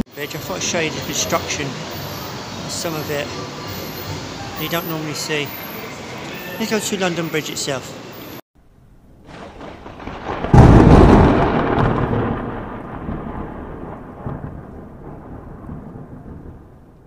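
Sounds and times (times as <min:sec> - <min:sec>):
rising rush into rumbling crash: 0:08.6 - 0:17.0.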